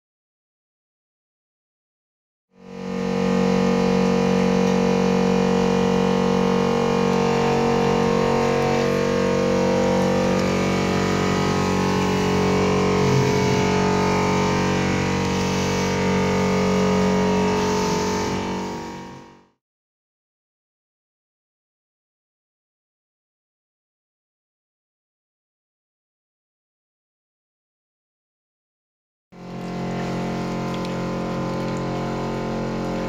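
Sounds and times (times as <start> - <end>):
pump motor humming: 2.6 - 19.6, 29.4 - 33.0.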